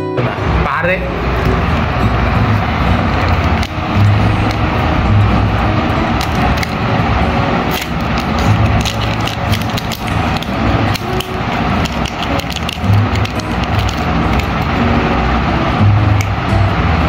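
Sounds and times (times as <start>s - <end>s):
steady low rumble: 0.2s - 17.0s
plastic bag crinkling: 7.7s - 14.7s.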